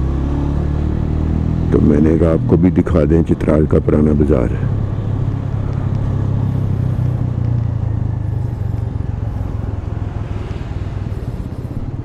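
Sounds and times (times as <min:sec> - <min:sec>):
motorcycle engine running: 0:03.4 - 0:12.0.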